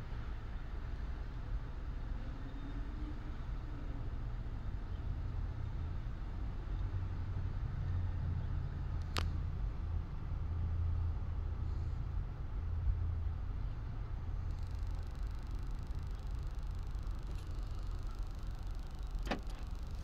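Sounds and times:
low rumble inside car cabin: 3.4s - 20.0s.

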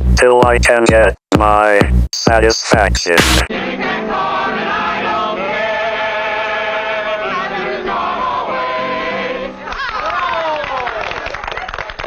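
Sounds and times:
group singing in chorus: 3.5s - 9.6s.

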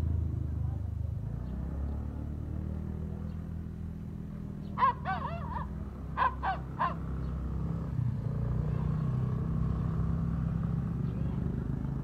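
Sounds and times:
puppy yelping: 4.8s - 7.0s.

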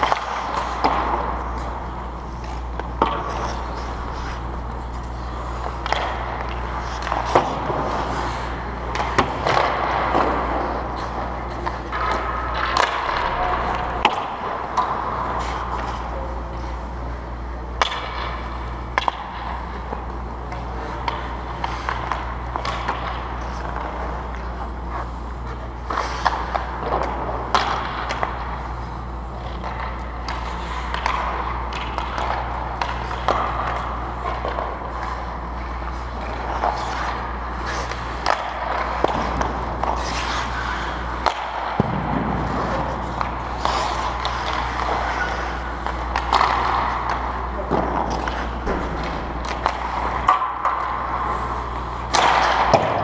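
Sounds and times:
ice skates scraping on ice: 0.0s - 17.2s, 18.0s - 53.0s
steady low hum: 0.0s - 53.0s
sticks and pucks clacking: 0.0s - 53.0s.

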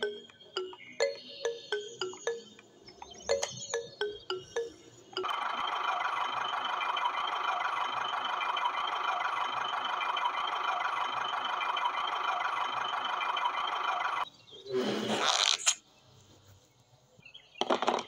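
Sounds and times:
toy motor whirring: 15.2s - 15.8s.

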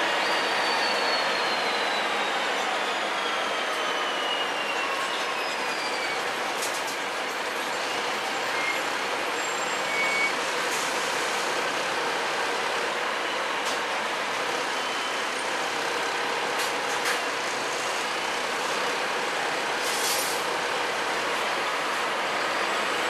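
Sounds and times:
short clicks and hisses: 19.8s - 20.4s.

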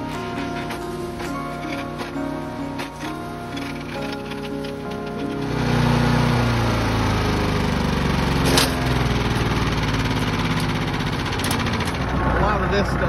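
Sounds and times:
small gasoline engine running: 3.0s - 13.0s.

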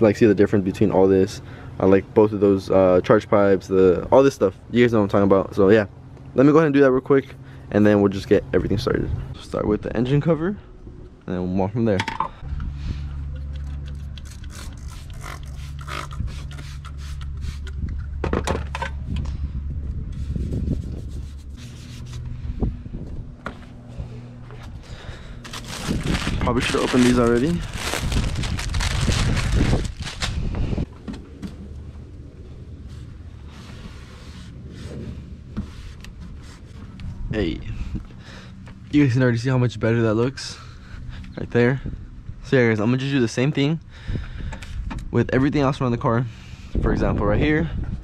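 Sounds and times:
low steady rumble: 0.0s - 48.0s
steady low hum: 0.0s - 48.0s
spray bottle spritzing: 13.9s - 17.7s
cloth rubbing plastic cover: 25.4s - 30.8s.

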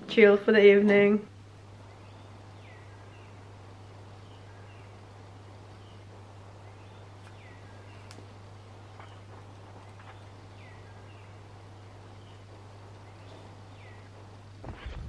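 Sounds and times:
steady low hum: 0.0s - 15.0s
soft clicks: 8.0s - 8.3s.

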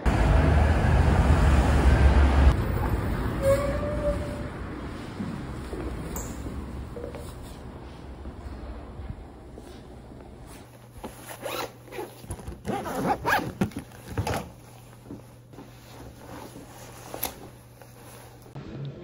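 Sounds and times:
clothing rustling: 9.6s - 18.6s
zipper being pulled: 11.0s - 14.4s.

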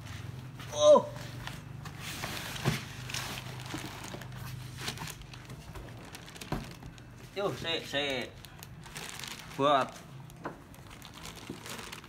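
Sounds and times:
foil bag crinkling: 2.9s - 12.0s.

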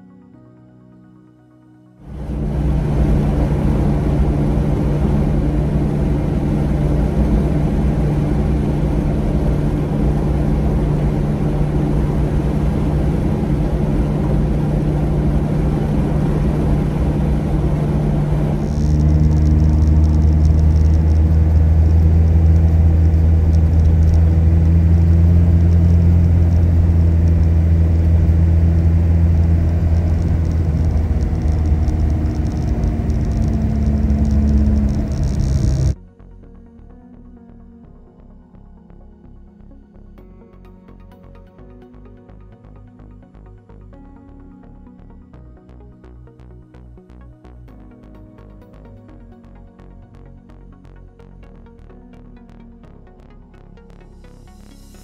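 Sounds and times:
car engine and road noise: 2.0s - 36.0s.

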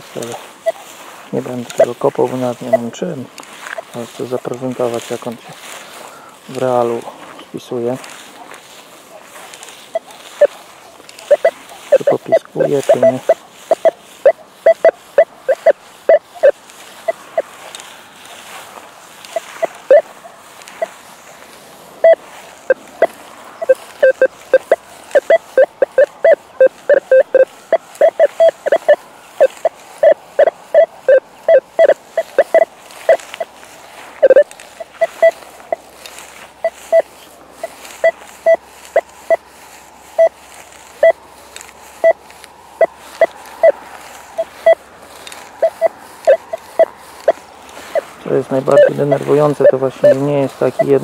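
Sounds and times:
metal detector short choppy beeps: 0.2s - 0.8s, 1.4s - 3.0s, 9.9s - 10.6s, 11.2s - 17.5s, 19.3s - 20.2s, 22.0s - 33.6s, 34.2s - 35.9s, 36.6s - 39.5s, 40.2s - 40.4s, 41.0s - 41.2s, 42.0s - 42.2s, 42.8s - 44.8s, 45.6s - 51.0s
metal detector long loud beep: 1.4s - 3.0s, 11.3s - 17.5s, 19.3s - 20.1s, 22.0s - 33.6s, 34.2s - 35.8s, 36.6s - 39.4s, 40.2s - 40.4s, 42.0s - 42.2s, 42.8s - 44.8s, 45.6s - 51.0s.

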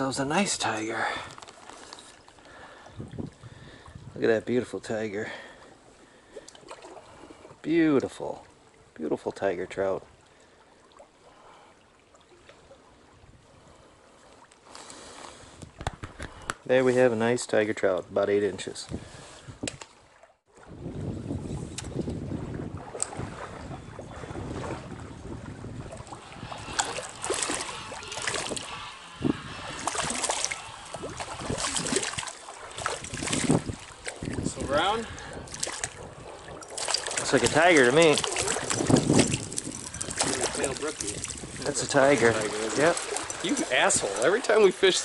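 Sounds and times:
irregular splashes: 5.3s - 9.0s, 21.7s - 45.0s
stream water flowing: 22.2s - 45.0s.

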